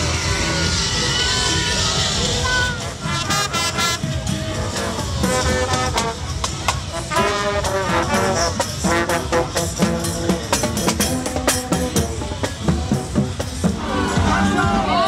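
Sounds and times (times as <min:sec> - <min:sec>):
marching brass band playing: 0:02.4 - 0:15.0
marching drums: 0:02.4 - 0:15.0.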